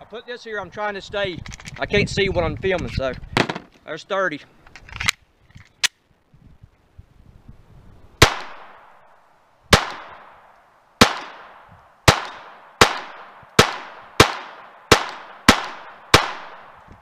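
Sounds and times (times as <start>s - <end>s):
pistol shots with echo: 8.2s - 8.9s, 9.7s - 10.4s, 11.0s - 16.8s.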